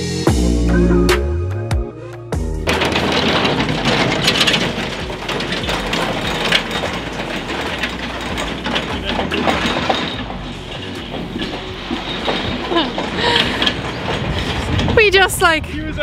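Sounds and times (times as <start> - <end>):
lorry engine running: 2.4 - 15.6
trailer knocking and rattling: 2.4 - 16.0.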